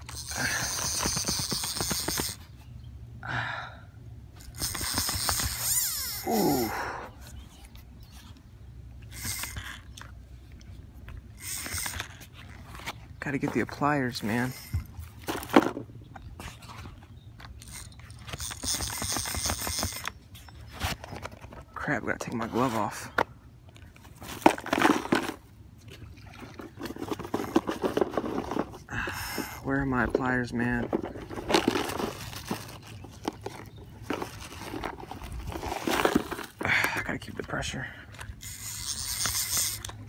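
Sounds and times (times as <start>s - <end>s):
backpack rustling and clicks: 31.0s - 36.6s.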